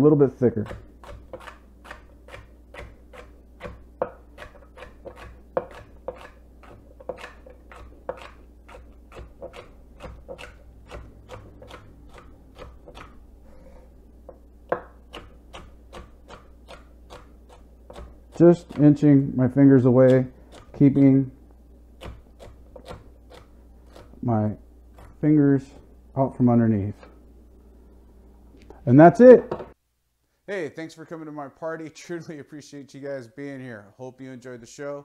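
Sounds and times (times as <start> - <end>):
knife chopping on wooden board: 0.6 - 13.2, 14.3 - 19.0, 22.0 - 24.1.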